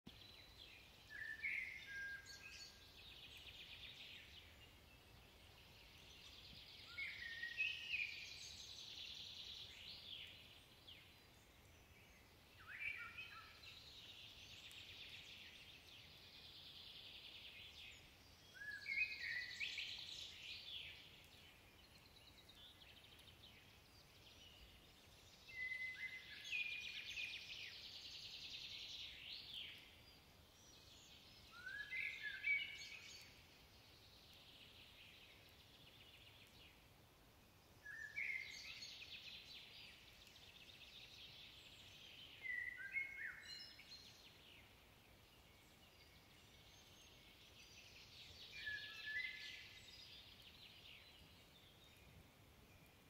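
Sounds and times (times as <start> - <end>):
blackbird singing: 0.1 - 33.4, 37.8 - 44.7, 45.4 - 52.1.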